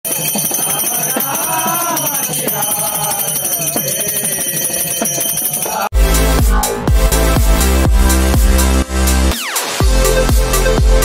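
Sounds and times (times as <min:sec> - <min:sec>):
hand cymbals ringing: 0:00.1 - 0:05.9.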